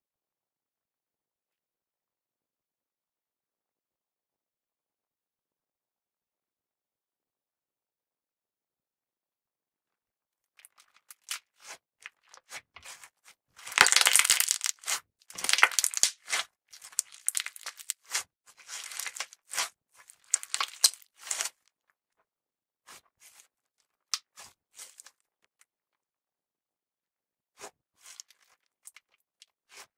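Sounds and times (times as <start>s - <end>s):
slime crackling and popping: 13.6s - 21.5s.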